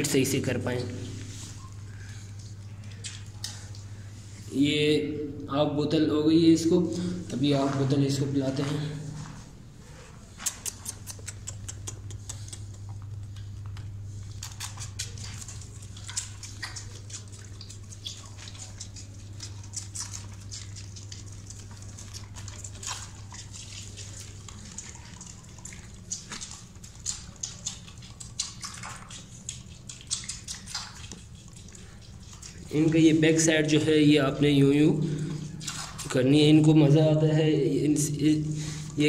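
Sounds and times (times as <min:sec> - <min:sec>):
steady low hum: 0:00.0 - 0:39.0
fawn sucking from a bottle: 0:10.4 - 0:36.7, 0:38.0 - 0:39.0.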